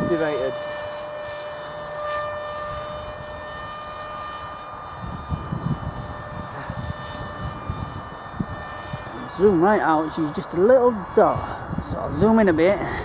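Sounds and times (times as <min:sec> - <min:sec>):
model plane motor whining: 0:00.0 - 0:13.0.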